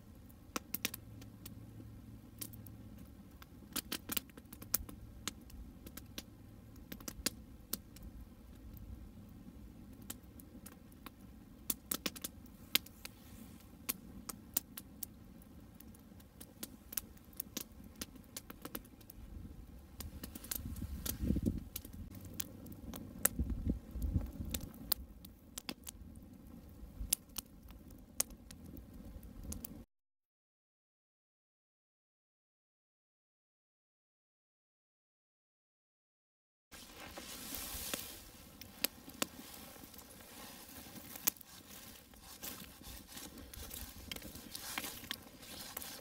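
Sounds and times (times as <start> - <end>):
campfire crackling and popping: 0.0 - 29.9, 36.7 - 46.0.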